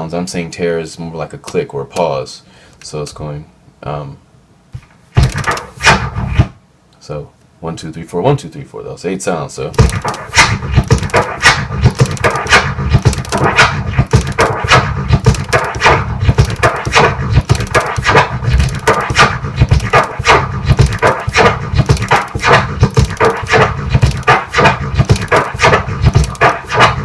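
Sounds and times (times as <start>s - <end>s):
turntable scratching drum sample: 5.2s - 6.5s, 9.8s - 27.0s.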